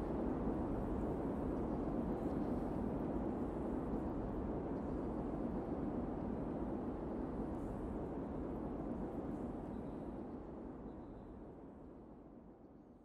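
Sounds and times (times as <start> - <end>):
low rumbling background noise: 0.0 - 13.0.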